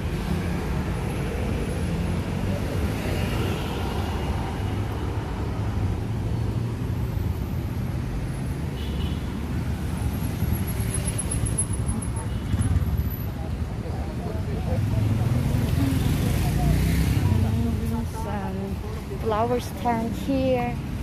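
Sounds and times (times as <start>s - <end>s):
car and bus engines passing: 0.0s - 21.0s.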